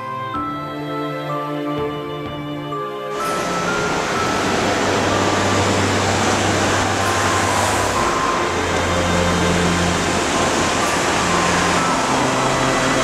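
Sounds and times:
music: 0.0 - 13.0
rushing water: 3.1 - 13.0.

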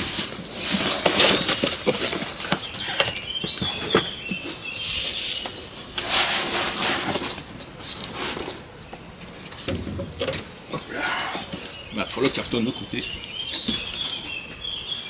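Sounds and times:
knocks and bumps of boxes: 0.0 - 4.8, 6.3 - 11.6
cardboard rustling and scraping: 0.0 - 10.6, 13.4 - 14.5.

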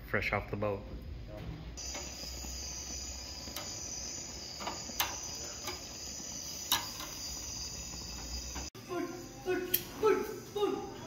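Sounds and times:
high-pitched insect chorus: 1.8 - 9.6.

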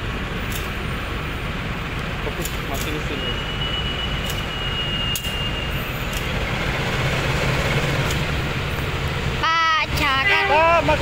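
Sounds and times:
locomotive diesel engine hum: 0.0 - 11.0.

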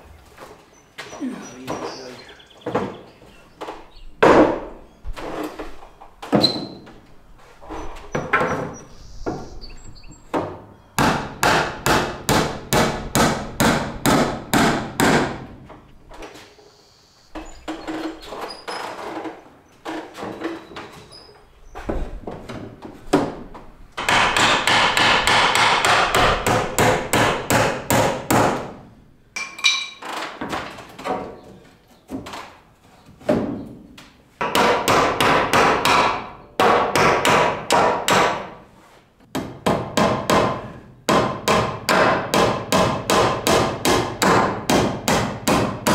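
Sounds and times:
hammer nailing wooden slats: 4.2 - 4.8, 10.3 - 16.3, 22.2 - 28.8, 34.4 - 38.6, 39.3 - 45.9.

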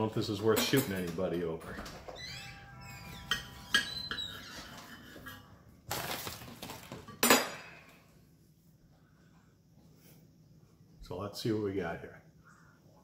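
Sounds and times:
knife scraping ceramic plate: 3.0 - 5.6.

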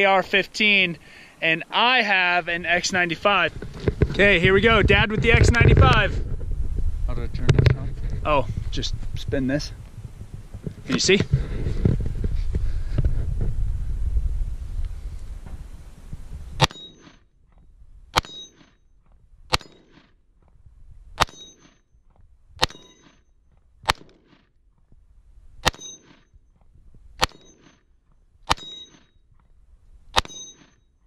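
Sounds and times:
rifle shots: 16.6 - 17.1, 18.1 - 18.6, 19.5 - 20.1, 21.2 - 21.6, 22.6 - 23.1, 23.8 - 24.4, 25.6 - 26.2, 27.2 - 27.7, 28.4 - 29.0, 30.1 - 30.6
bullet pinging on steel gong: 21.2 - 21.6, 25.6 - 26.1, 28.5 - 29.1, 30.2 - 30.8.

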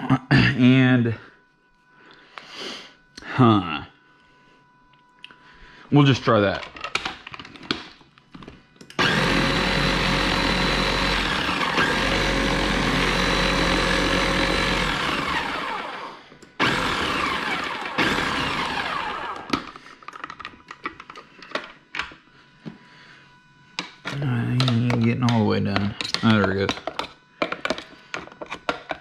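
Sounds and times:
electric blender running: 8.9 - 19.8
small clicks and knocks: 19.5 - 22.2, 23.8 - 29.0.

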